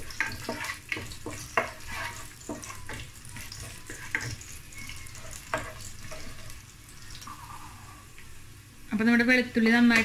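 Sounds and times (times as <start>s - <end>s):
wooden spatula scraping pot: 0.0s - 6.6s
garlic sizzling in hot oil: 0.0s - 7.4s.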